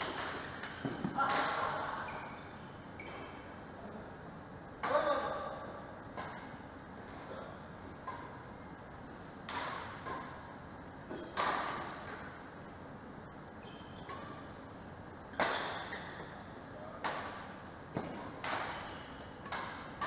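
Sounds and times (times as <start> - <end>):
rackets striking shuttlecock: 9.4 - 10.4, 15.3 - 16.1, 17.0 - 20.0.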